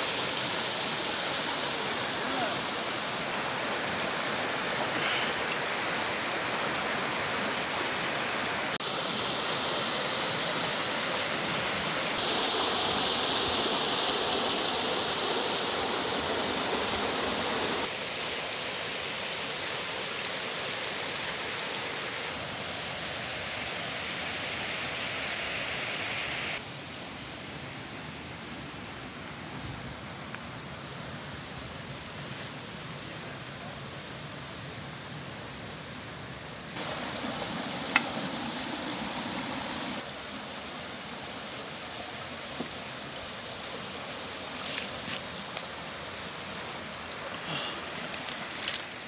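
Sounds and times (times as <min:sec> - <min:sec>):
creek rushing over rocks: 0:00.0 - 0:26.7, 0:36.7 - 0:49.0.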